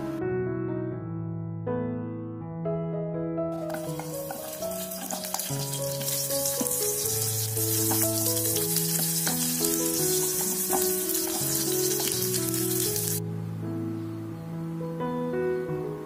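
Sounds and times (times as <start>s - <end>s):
soft piano music: 0.0s - 16.0s
food sizzling in hot oil: 3.6s - 13.2s.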